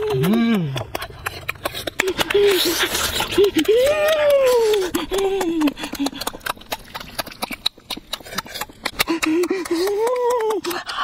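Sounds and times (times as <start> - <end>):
person humming: 0.0 - 1.1
wet chewing and lip-smacking: 0.0 - 11.0.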